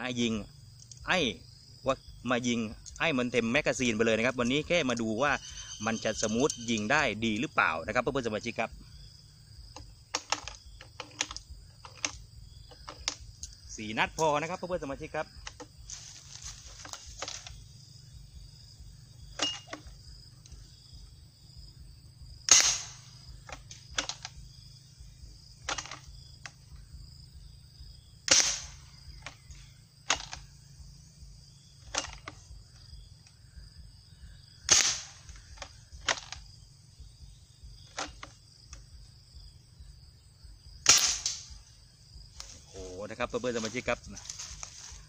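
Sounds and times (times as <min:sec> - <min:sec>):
very loud gun shots: 0:22.5 - 0:23.2, 0:28.2 - 0:28.9, 0:34.7 - 0:35.3, 0:40.8 - 0:41.5.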